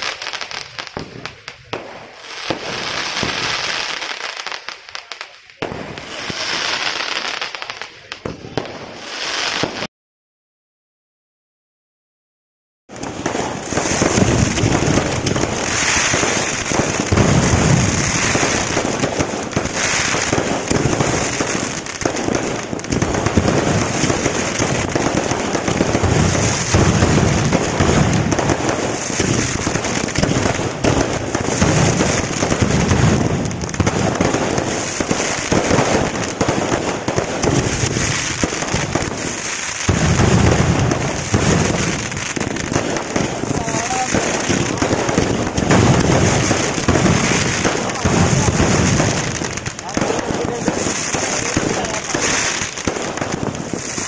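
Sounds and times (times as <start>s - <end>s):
fireworks bursts and bangs: 0.0s - 9.9s, 12.9s - 54.0s
fireworks crackling: 0.0s - 9.9s, 12.9s - 54.0s.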